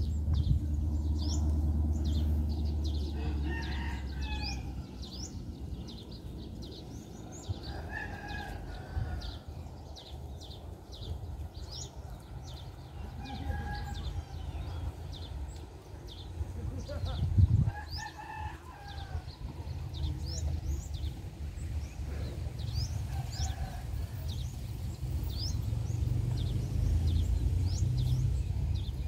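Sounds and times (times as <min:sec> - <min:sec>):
low rumble: 0:00.0 - 0:17.7
birds chirping: 0:00.0 - 0:29.0.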